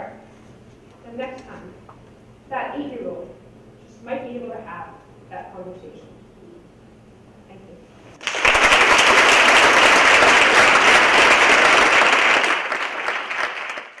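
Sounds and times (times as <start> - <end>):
audience applauding: 8.2 - 14.0.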